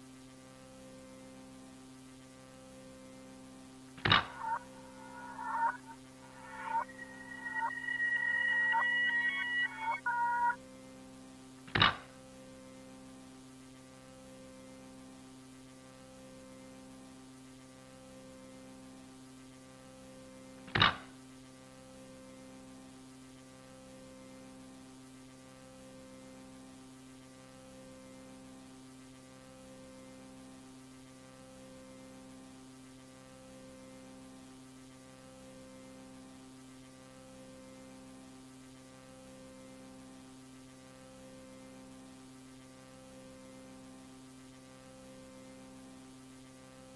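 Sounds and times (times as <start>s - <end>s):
sharp click: 4.0s - 10.6s
throbbing electronic drone: 4.0s - 10.6s.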